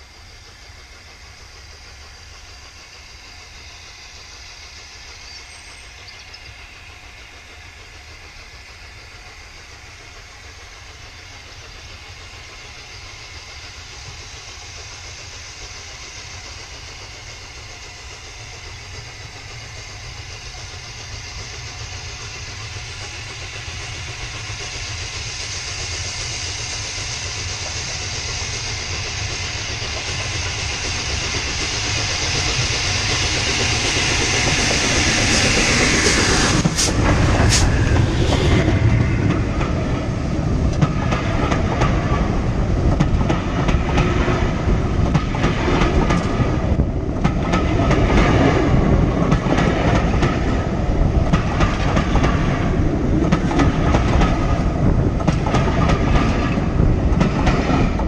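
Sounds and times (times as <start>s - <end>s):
steam locomotive running: 0.0s - 58.0s
low rumble: 29.5s - 58.0s.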